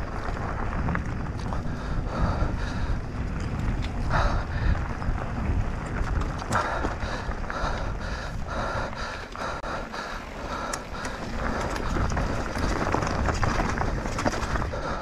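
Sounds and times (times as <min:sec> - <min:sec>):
bike rattling on stony ground: 0:00.0 - 0:15.0
wind rumble: 0:00.0 - 0:15.0
person panting hard: 0:01.6 - 0:03.2, 0:04.0 - 0:04.9, 0:06.5 - 0:13.0, 0:14.5 - 0:15.0.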